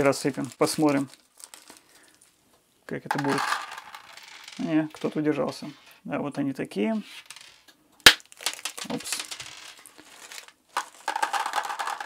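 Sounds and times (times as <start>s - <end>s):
plastic parts clattering: 0.0s - 2.3s, 3.1s - 6.0s, 8.3s - 12.0s
plastic bag rustling: 0.0s - 2.4s, 9.8s - 12.0s.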